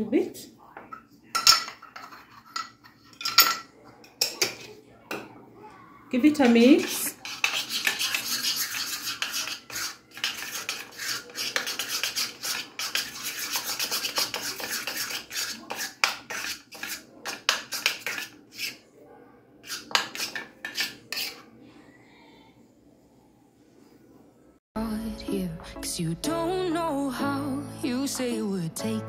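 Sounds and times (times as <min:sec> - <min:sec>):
metal spoon scraping ceramic bowl: 0:01.4 - 0:03.6, 0:06.4 - 0:18.8, 0:19.6 - 0:21.5.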